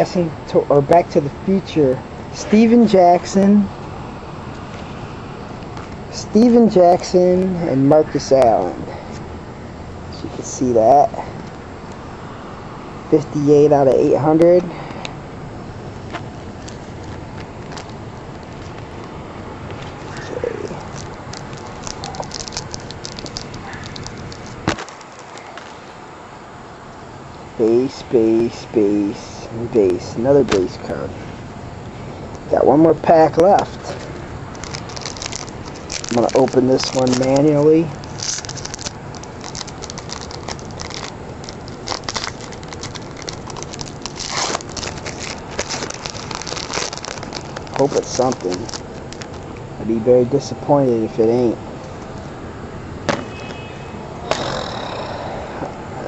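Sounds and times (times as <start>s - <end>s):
steady background noise: 0.0s - 56.0s
plastic wrapper crinkling: 16.4s - 19.0s, 19.7s - 25.8s, 33.6s - 49.5s.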